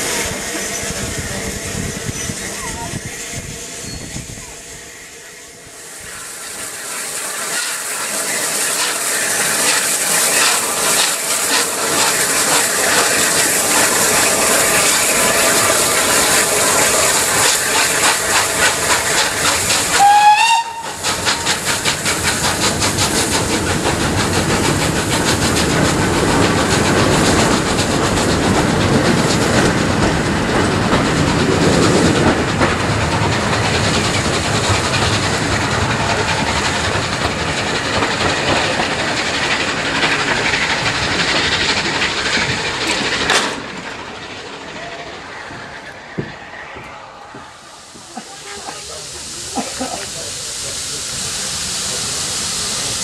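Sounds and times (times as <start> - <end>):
steam locomotive chuffing: 0.0 - 53.0
train coaches clattering over rails: 6.1 - 53.0.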